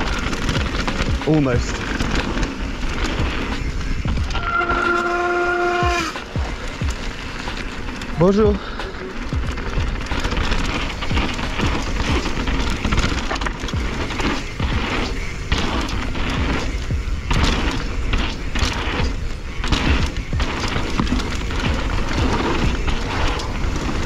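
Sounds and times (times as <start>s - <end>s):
wind buffeting microphone: 0.0s - 4.8s
bike thumps and rattles: 0.0s - 24.0s
tyres on dirt trail: 0.0s - 24.0s.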